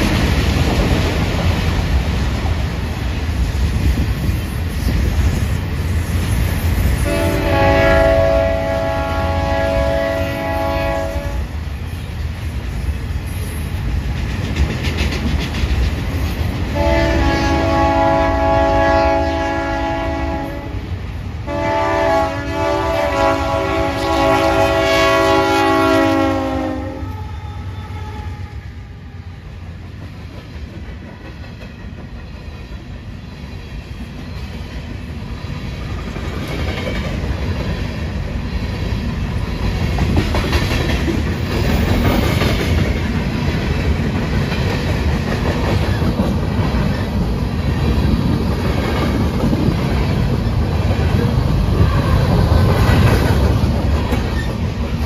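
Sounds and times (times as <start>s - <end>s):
diesel locomotives rumbling: 0.0s - 55.0s
train horn: 7.0s - 11.6s, 16.7s - 29.2s
train wheels clattering: 12.5s - 18.5s, 29.7s - 55.0s.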